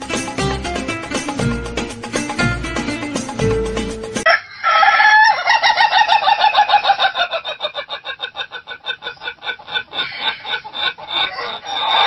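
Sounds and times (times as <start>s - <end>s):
rooster crowing: 4.2s - 7.7s, 10.0s - 12.0s.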